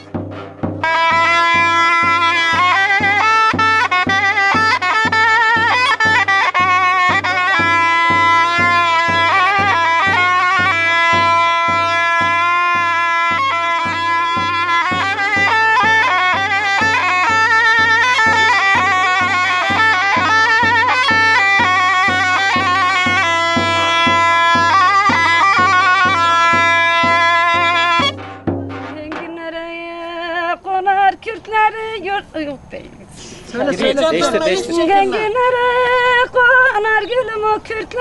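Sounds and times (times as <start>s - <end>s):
steady low drum beat: 0.0s - 29.6s
shawm playing folk melody: 0.0s - 31.7s, 33.3s - 38.0s.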